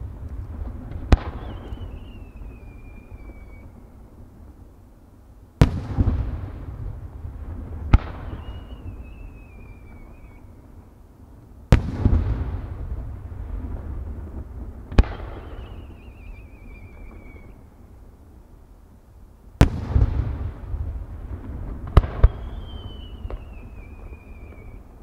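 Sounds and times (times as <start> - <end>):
firework launch crack: 0.0 - 3.9, 5.6 - 10.5, 11.7 - 17.6, 19.6 - 25.0
firework bursts with rumbling echo: 0.0 - 4.6, 5.6 - 11.0, 11.6 - 18.1, 19.6 - 25.0
falling firework whistle: 1.0 - 4.0, 7.9 - 10.6, 15.0 - 17.7, 21.9 - 25.0.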